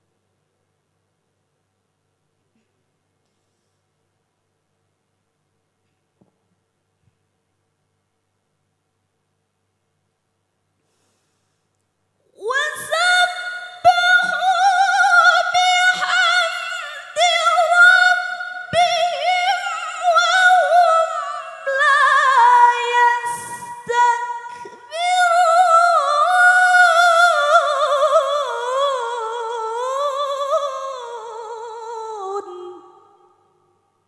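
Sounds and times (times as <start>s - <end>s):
sharp breath: 10.8s - 11.8s
woman reciting melodically: 12.4s - 33.5s.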